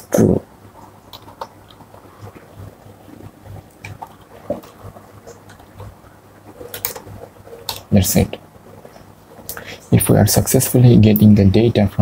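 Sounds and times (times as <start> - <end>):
low steady hum: 0.0 - 12.0
computer keyboard clicks: 1.1 - 2.0, 6.6 - 7.9.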